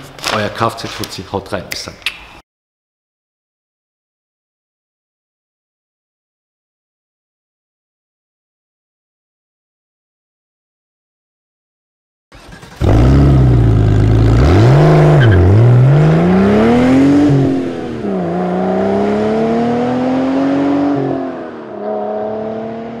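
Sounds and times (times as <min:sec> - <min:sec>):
car engine revving: 0:12.4 - 0:23.0.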